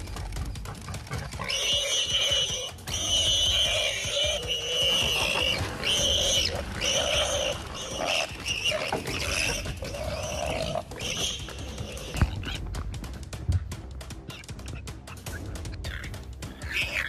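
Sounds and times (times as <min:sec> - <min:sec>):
animal crying out: 0:01.3 - 0:12.6, 0:15.8 - 0:17.0.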